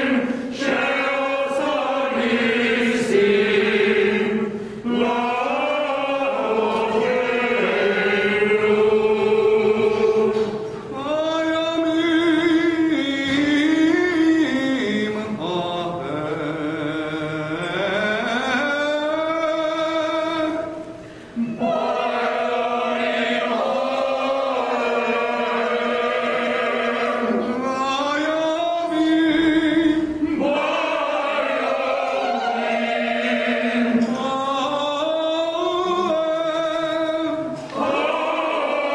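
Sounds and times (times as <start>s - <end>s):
mixed choir singing: 0.0s - 38.9s.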